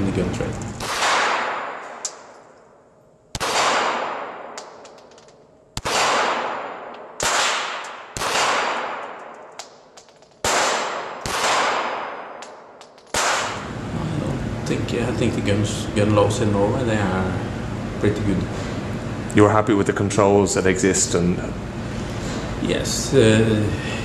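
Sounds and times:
pistol shots echoing indoors: 0.8 - 13.6.

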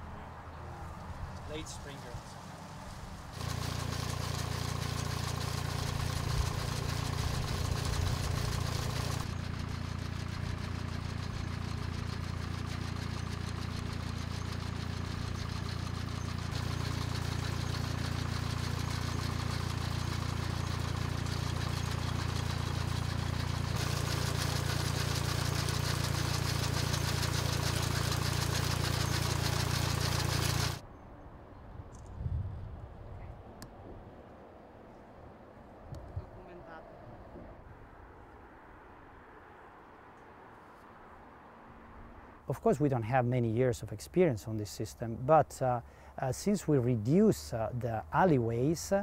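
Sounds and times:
tractor engine running: 0.9 - 30.8.

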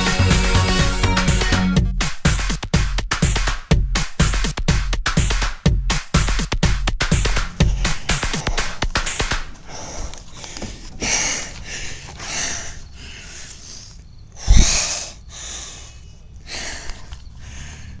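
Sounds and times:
man panting heavily: 7.3 - 18.0.

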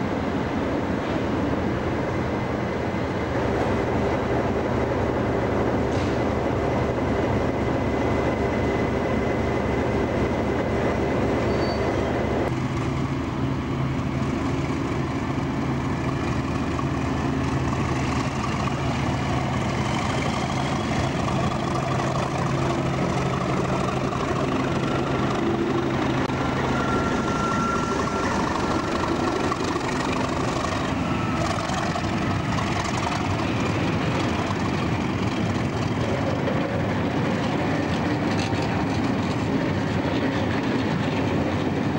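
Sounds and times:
diesel train idling: 0.0 - 41.9
locomotive diesel engine drone: 0.0 - 41.9
train coaches rolling past: 0.0 - 41.9
faint rising whistle: 11.4 - 12.1, 24.6 - 29.6.

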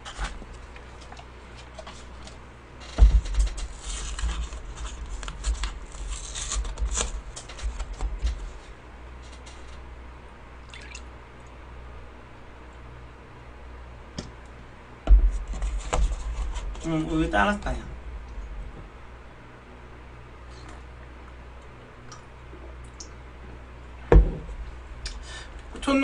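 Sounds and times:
carton crackling and rustling: 0.0 - 9.8, 15.1 - 17.6.

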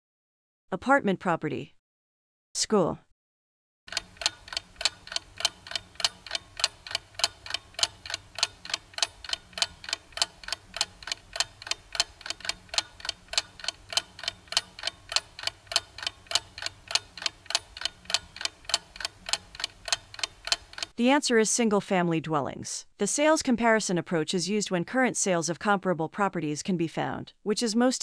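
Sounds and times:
clock ticking: 3.9 - 21.0.

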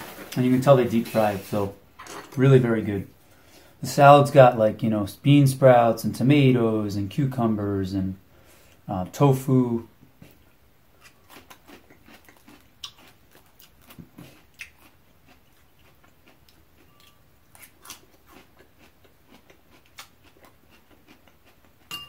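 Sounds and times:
chewing salad with wet crunches: 11.0 - 22.0.

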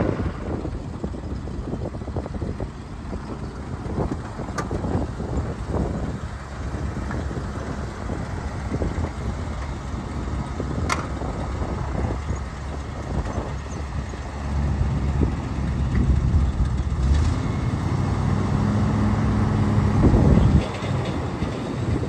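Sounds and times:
truck engine rumbling: 0.0 - 22.0.

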